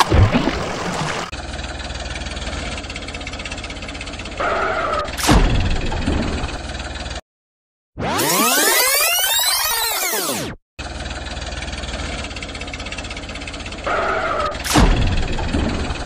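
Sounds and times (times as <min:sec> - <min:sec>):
splash-like hit: 0:00.0 - 0:01.3
tractor engine sound effect: 0:00.0 - 0:07.2, 0:08.0 - 0:16.0.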